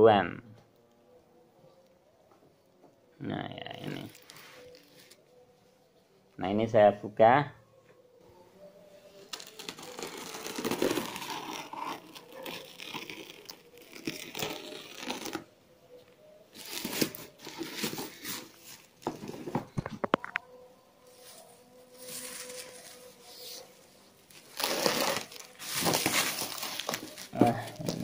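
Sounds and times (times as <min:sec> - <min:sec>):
plastic wrapping crinkling and tearing: 0:03.8 - 0:05.2, 0:09.2 - 0:15.5, 0:16.5 - 0:20.5, 0:21.1 - 0:28.0
sharp plastic crackles: 0:09.2 - 0:15.5, 0:24.3 - 0:28.0.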